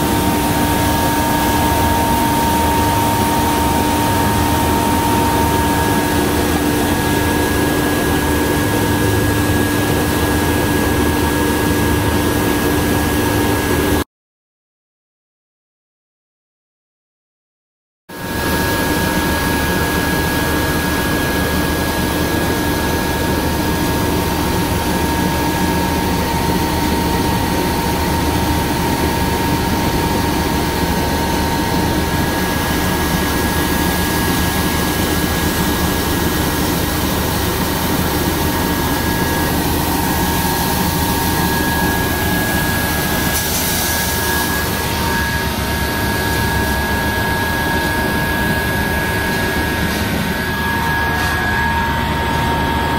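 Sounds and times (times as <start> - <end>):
sander machine humming and whining: 0.0 - 13.9, 43.9 - 52.9.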